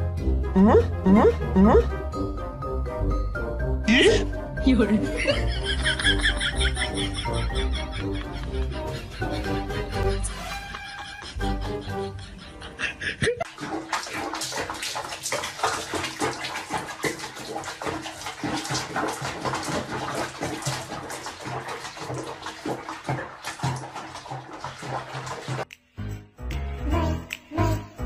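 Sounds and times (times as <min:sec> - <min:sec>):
water splashing and sloshing: 0:04.0 - 0:12.3, 0:13.1 - 0:25.7.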